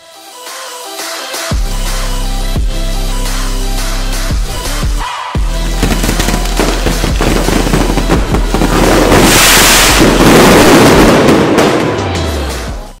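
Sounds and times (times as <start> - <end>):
fireworks bursting and crackling: 5.7 - 12.4
loud hissing firework burst: 8.5 - 11.6.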